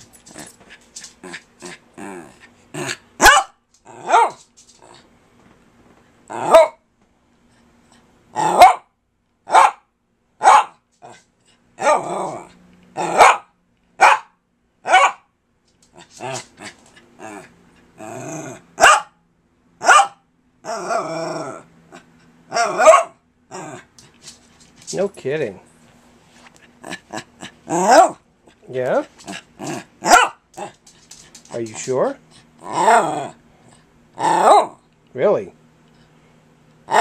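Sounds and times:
dog growling: 0:00.2 - 0:03.1, 0:03.9 - 0:04.2, 0:06.3 - 0:06.7, 0:08.4 - 0:08.7, 0:11.8 - 0:13.2, 0:16.0 - 0:18.8, 0:20.6 - 0:24.2, 0:26.8 - 0:30.9, 0:32.3 - 0:34.8
small dog barking: 0:03.2 - 0:04.4, 0:06.3 - 0:06.8, 0:08.4 - 0:08.9, 0:09.5 - 0:11.2, 0:11.8 - 0:15.3, 0:18.8 - 0:19.2, 0:19.8 - 0:21.1, 0:22.5 - 0:23.2, 0:27.7 - 0:28.2, 0:30.0 - 0:30.7, 0:34.2 - 0:34.8.

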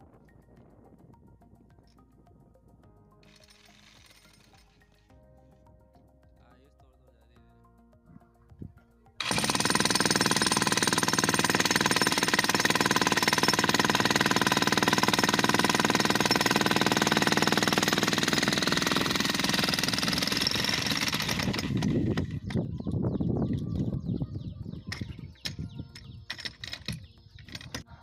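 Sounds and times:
demolition hammer breaking concrete: 0:09.2 - 0:22.3.

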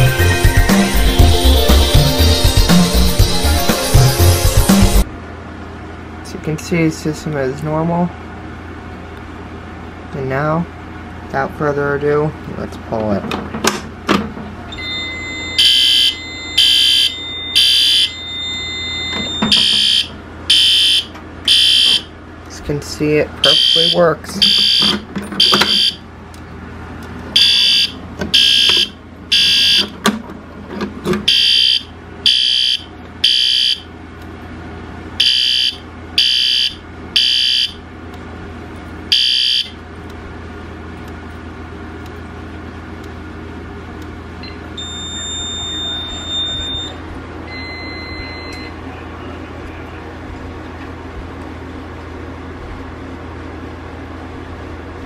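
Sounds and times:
low steady hum: 0:00.0 - 0:55.0
fire alarm beeping: 0:14.7 - 0:22.1, 0:23.4 - 0:26.0, 0:27.4 - 0:29.9, 0:31.3 - 0:33.9, 0:35.2 - 0:37.8, 0:39.1 - 0:39.8, 0:44.4 - 0:48.9.

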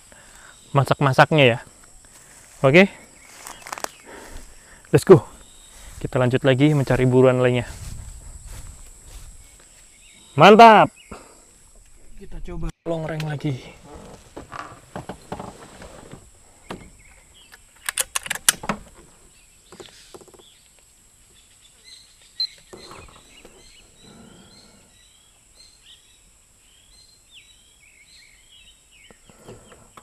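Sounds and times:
small birds chirping: 0:00.0 - 0:18.1, 0:18.9 - 0:30.0
sharp clicks and knocks: 0:17.5 - 0:19.0.

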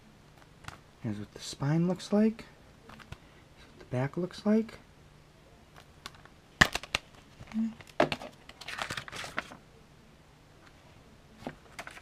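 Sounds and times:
paper insert rustling: 0:06.7 - 0:09.6, 0:11.4 - 0:12.0.

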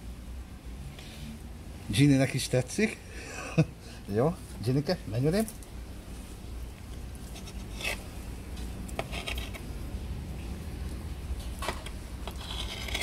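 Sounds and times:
low steady hum: 0:00.0 - 0:13.0
knife scraping and tapping on stone: 0:08.8 - 0:09.6, 0:11.6 - 0:13.0.

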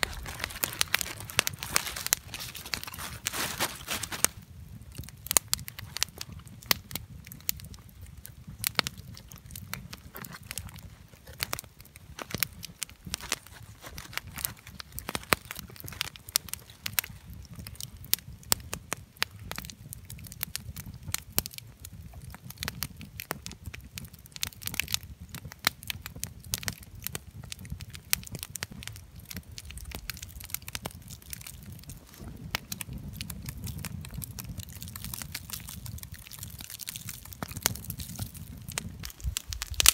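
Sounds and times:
plastic bag rustling: 0:00.0 - 0:04.4, 0:13.2 - 0:15.6
campfire crackling and popping: 0:00.0 - 0:39.9.

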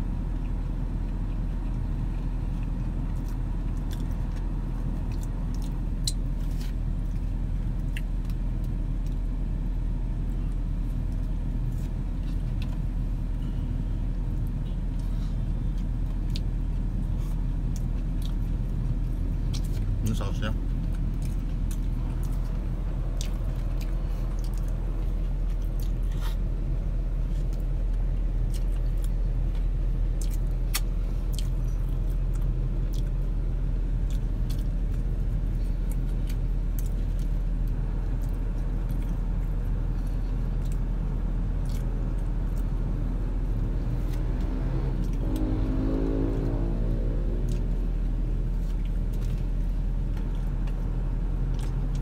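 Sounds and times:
chewing: 0:00.4 - 0:09.2, 0:20.8 - 0:26.5, 0:27.2 - 0:33.2, 0:41.5 - 0:42.8.

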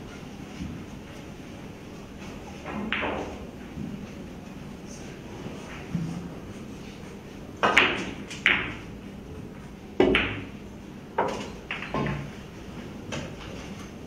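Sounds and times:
pool balls clicking: 0:02.6 - 0:03.6, 0:07.6 - 0:09.0, 0:10.0 - 0:14.0
cue striking cue ball: 0:02.7 - 0:03.4, 0:07.6 - 0:08.9, 0:10.0 - 0:10.5, 0:11.2 - 0:12.3.

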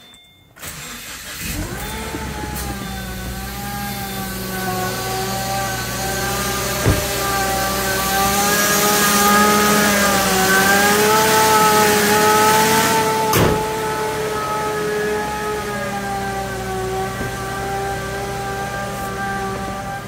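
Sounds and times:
car engine running: 0:00.6 - 0:20.0
supercharger whine: 0:00.6 - 0:20.0
sharp knocks: 0:06.6 - 0:07.5.

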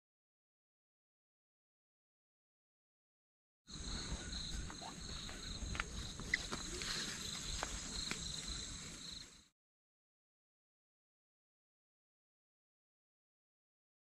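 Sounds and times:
insects chirring: 0:03.7 - 0:09.5.

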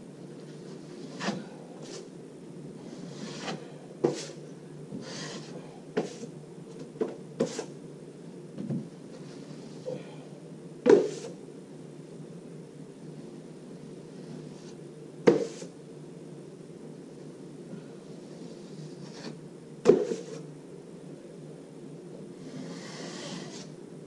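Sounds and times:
knife scraping plasterboard: 0:00.6 - 0:02.1, 0:02.8 - 0:04.4, 0:05.0 - 0:06.3, 0:07.4 - 0:07.7, 0:18.2 - 0:20.5, 0:22.4 - 0:23.7.

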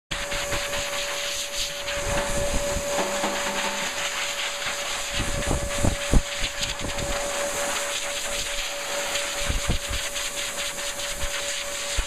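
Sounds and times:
hairdryer blowing: 0:00.2 - 0:12.0.

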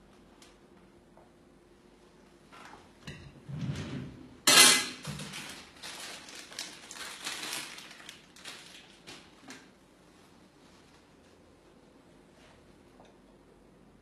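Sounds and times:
objects rustling and clattering: 0:02.5 - 0:09.7.

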